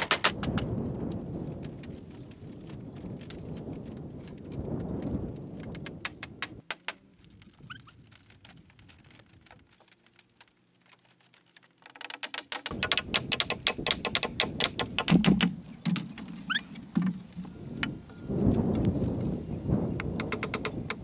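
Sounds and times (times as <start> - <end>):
bamboo clicking and clattering: 0.0 - 19.3, 20.0 - 21.0
bird chirping: 15.0 - 17.6.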